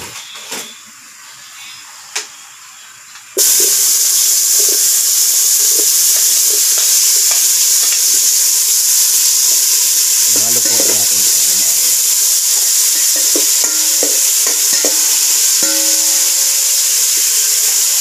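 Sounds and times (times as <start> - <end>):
food sizzling in hot oil: 3.4 - 18.0
spoon stirring in pot: 12.5 - 17.5.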